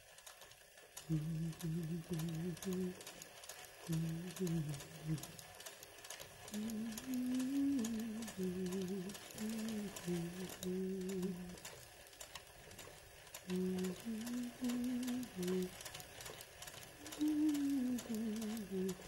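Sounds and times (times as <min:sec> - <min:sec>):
sewing machine needle ticking: 0:00.0 - 0:19.0
person humming a slow tune: 0:01.0 - 0:03.2, 0:03.8 - 0:05.6, 0:06.5 - 0:11.8, 0:13.4 - 0:16.0, 0:16.8 - 0:19.0.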